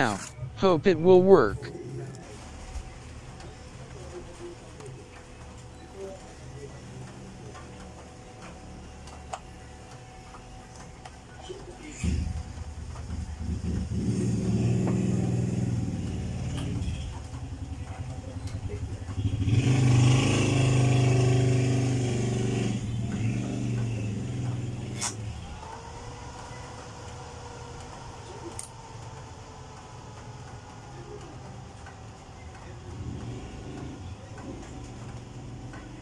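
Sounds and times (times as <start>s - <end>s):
engine running and revving: 12.0s - 25.6s, 32.5s - 36.0s.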